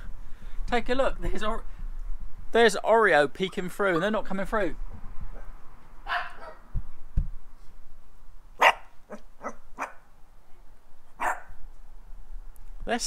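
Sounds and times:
puppy barking: 6.1s - 6.6s, 8.6s - 10.1s, 11.2s - 11.6s.

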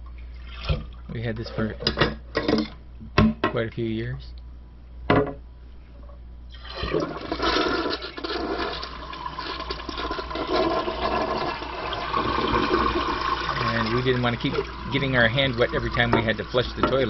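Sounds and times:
water draining from toilet tank: 6.5s - 17.0s.

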